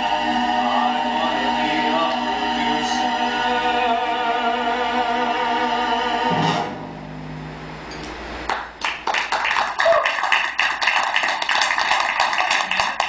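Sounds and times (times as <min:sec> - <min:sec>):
audience applause: 0:08.5 - 0:13.0.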